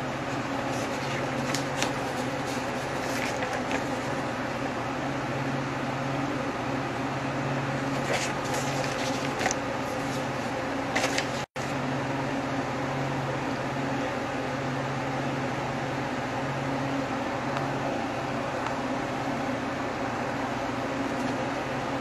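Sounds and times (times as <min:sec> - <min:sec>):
air conditioner hum and hiss: 0:00.0 - 0:22.0
paper rustling: 0:00.2 - 0:04.3, 0:07.8 - 0:11.8, 0:21.1 - 0:21.6.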